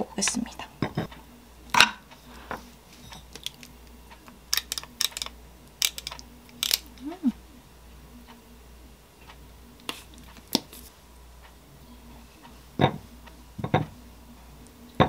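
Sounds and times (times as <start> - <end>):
metal scoop clicking against glass: 4.6 - 7.0.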